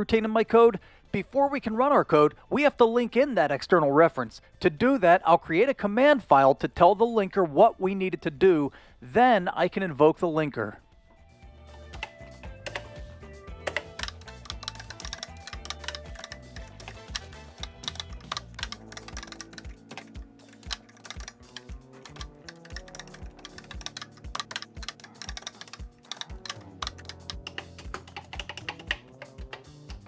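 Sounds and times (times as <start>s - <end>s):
quiet background music: 0.0s - 30.0s
keyboard keys clacking: 11.8s - 30.0s.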